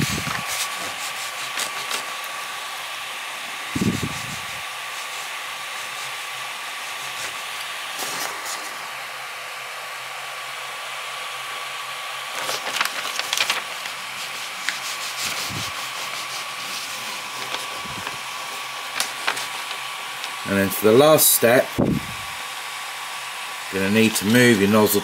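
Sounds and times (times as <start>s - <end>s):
paper scraping under nozzle: 0.0s - 2.8s, 3.5s - 9.0s, 12.2s - 22.5s, 23.7s - 25.0s
cooling fan whine: 0.0s - 25.0s.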